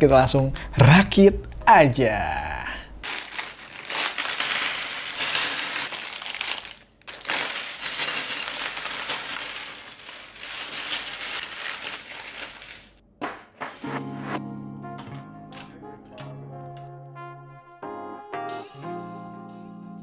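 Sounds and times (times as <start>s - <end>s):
plastic bags crinkling: 3.0s - 13.0s
plastic pieces clattering on table: 3.0s - 13.0s.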